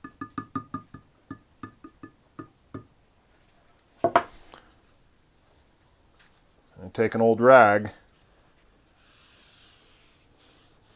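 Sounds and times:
can knocking on wooden bench: 0.0 - 2.9, 4.0 - 4.3.

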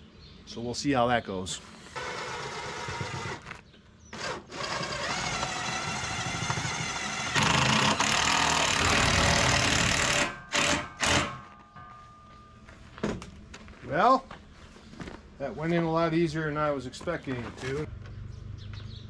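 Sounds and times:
cordless drill motor whine: 4.2 - 11.2.

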